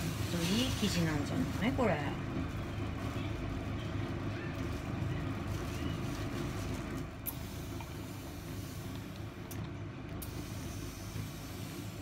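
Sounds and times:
steady low hum: 0:00.0 - 0:12.0.

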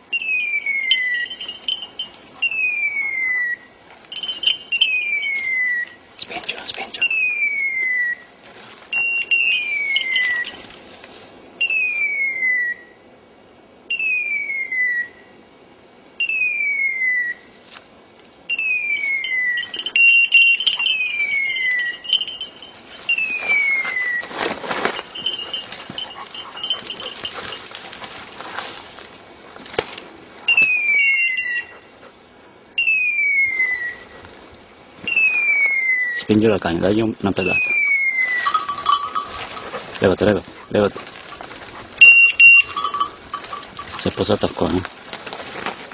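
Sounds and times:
brush crackling: 0:00.0 - 0:11.8, 0:17.6 - 0:31.9, 0:34.2 - 0:45.9
dog bell ringing: 0:00.2 - 0:02.5, 0:04.0 - 0:05.5, 0:09.2 - 0:10.8, 0:19.0 - 0:28.2, 0:38.3 - 0:44.8.

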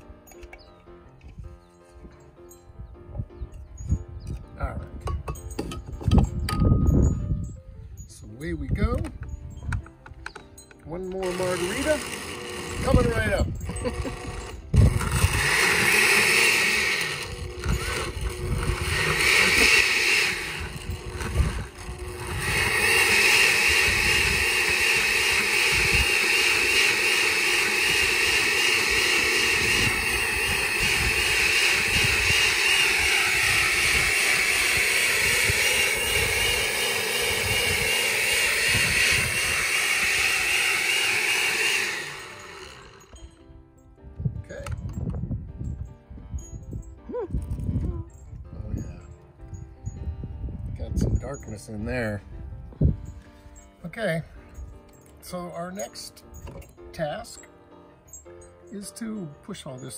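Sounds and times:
blender running: 0:11.2 - 0:43.2.

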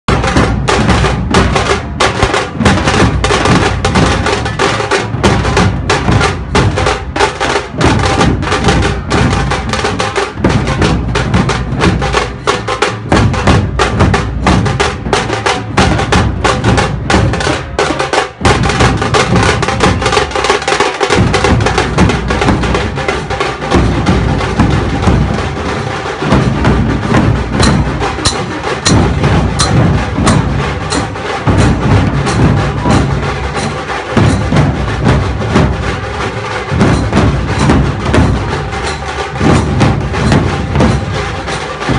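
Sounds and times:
dhol drums beaten fast: 0:00.1 - 0:41.9.

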